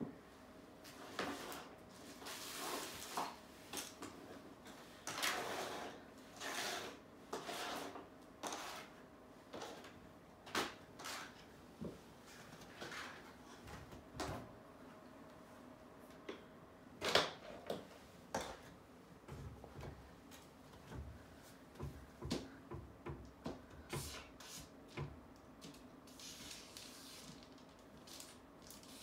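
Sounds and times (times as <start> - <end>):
faint steady hum: 0.0 - 29.0
paper and tape rustling: 25.6 - 29.0.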